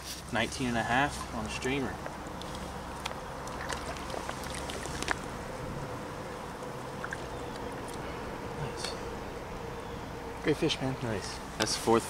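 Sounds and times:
stream water running: 0.0s - 12.0s
water splashes and drips: 1.0s - 5.6s, 6.2s - 8.1s.

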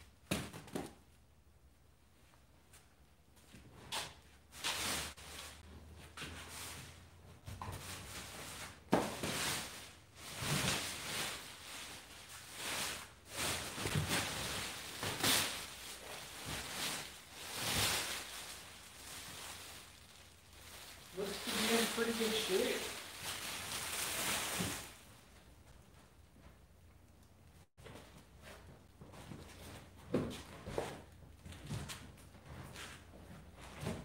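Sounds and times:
plastic and cardboard rustling: 3.4s - 26.5s.

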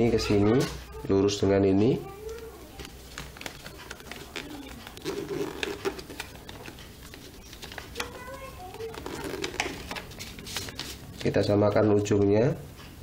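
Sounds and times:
paper rustling and creasing: 2.3s - 11.4s.

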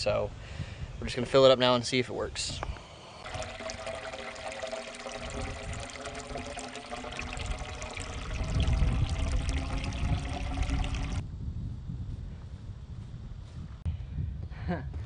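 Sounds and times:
water from hose splashing into pipe: 3.2s - 11.2s.

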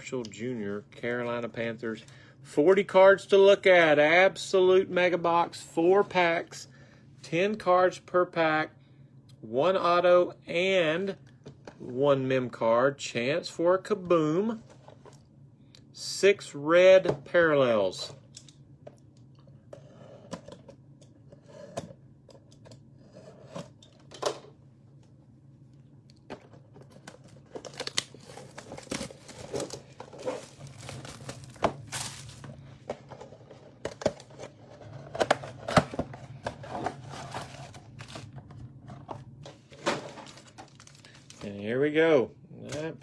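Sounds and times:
low room hum: 0.0s - 43.0s
plastic wrap rustling: 26.8s - 32.6s, 40.0s - 41.5s
cardboard scraping and rustling: 27.5s - 40.8s.

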